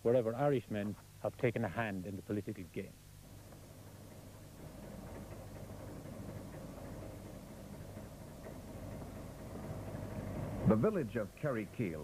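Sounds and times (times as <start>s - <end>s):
engine running with low hum: 3.3s - 12.0s.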